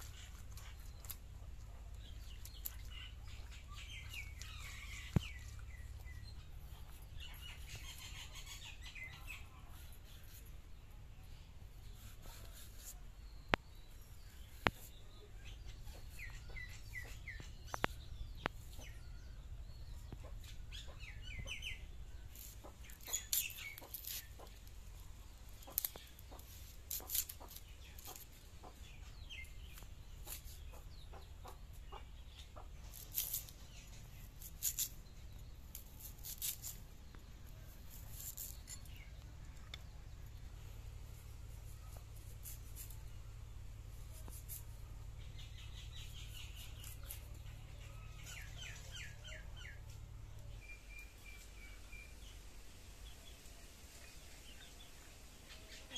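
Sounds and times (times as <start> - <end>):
crisp cutting and scraping: 0.0 - 3.1, 11.8 - 13.0, 22.3 - 28.5, 29.4 - 31.6, 32.8 - 39.7, 41.2 - 43.2, 43.9 - 44.8, 45.5 - 47.5
bird chirping: 0.0 - 55.9
low steady hum: 0.0 - 55.9.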